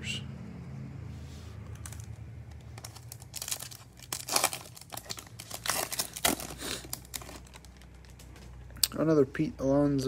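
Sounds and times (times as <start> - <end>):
foil wrapper crinkling: 1.8 - 8.4.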